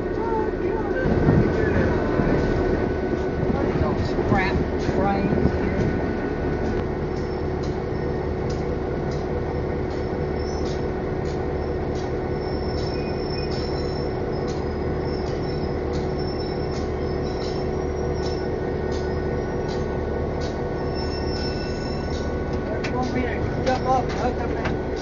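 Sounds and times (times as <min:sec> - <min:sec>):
diesel locomotive engine drone: 0:00.0 - 0:25.0
short high squeaks: 0:20.7 - 0:22.3.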